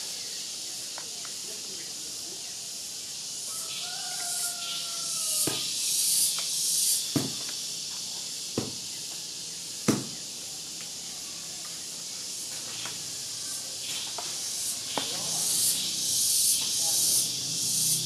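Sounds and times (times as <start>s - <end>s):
faint high hiss: 0.0s - 18.0s
aerosol spray paint hissing: 4.2s - 18.0s
sharp knocks: 5.4s - 5.8s, 7.1s - 7.5s, 8.6s - 8.8s, 9.8s - 10.2s.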